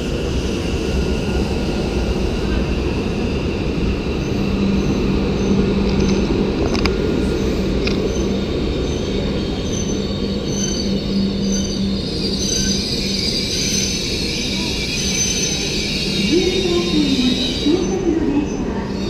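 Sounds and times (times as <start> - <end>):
train rumbling on rails: 0.0 - 19.0
high wheel squeal: 4.1 - 19.0.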